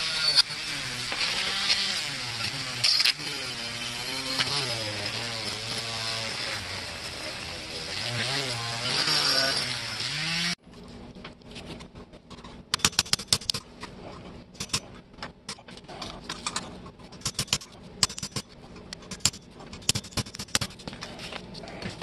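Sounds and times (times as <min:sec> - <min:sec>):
rotary tool running: 0:00.0 - 0:10.6.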